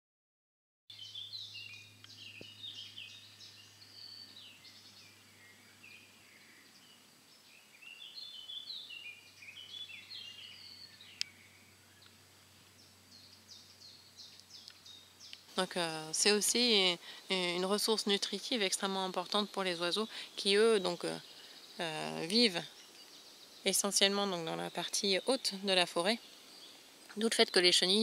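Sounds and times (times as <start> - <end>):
faint steady low hum: 0.9 - 28.0.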